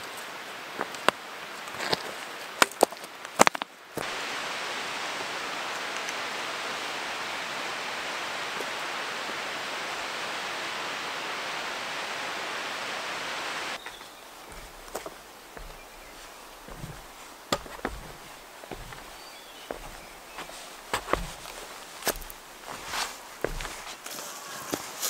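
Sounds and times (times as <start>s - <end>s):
trekking poles tapping on rock: 13.8s - 24.0s
boots on stony trail: 13.8s - 24.2s.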